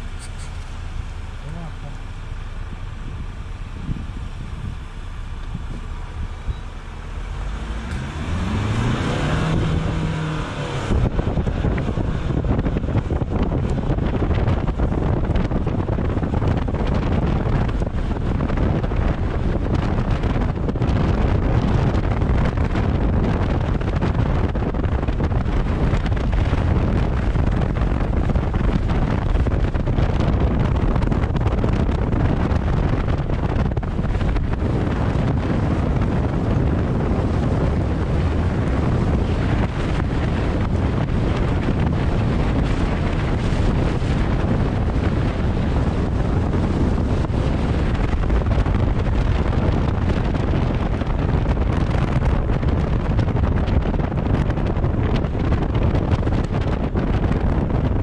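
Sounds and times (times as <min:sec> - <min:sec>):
pickup engine revving: 0:00.0 - 0:52.9
wind buffeting microphone: 0:00.0 - 0:58.0.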